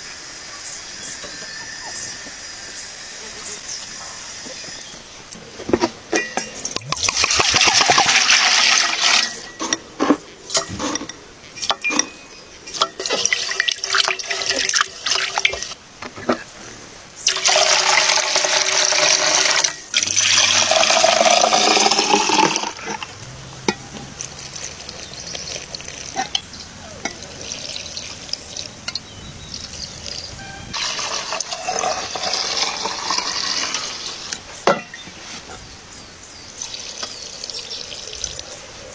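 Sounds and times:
liquid pouring into a pitcher: 0:17.3 - 0:23.1, 0:24.2 - 0:26.2, 0:27.2 - 0:28.7, 0:30.8 - 0:34.0
liquid pouring into a bowl: 0:20.0 - 0:23.0, 0:24.2 - 0:26.2.

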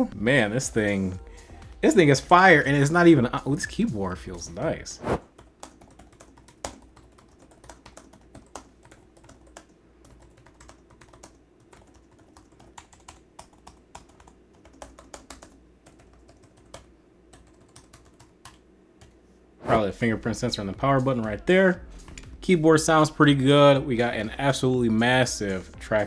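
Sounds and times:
laptop keyboard typing: 0:05.3 - 0:19.2.

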